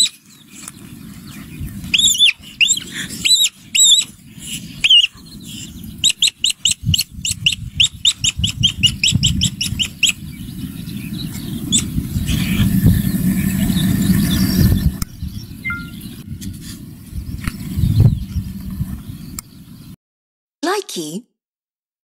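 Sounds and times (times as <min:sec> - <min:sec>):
ground squirrel chirping calls: 0:01.9 - 0:04.1, 0:04.8 - 0:11.9, 0:15.4 - 0:16.2
low rumble: 0:09.2 - 0:20.0.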